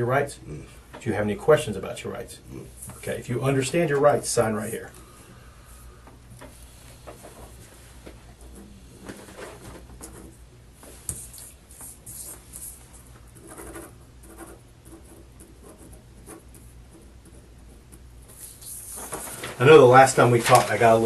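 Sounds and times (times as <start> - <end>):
low steady hum: 0.0 - 21.0
pen scratching on paper: 11.2 - 19.0.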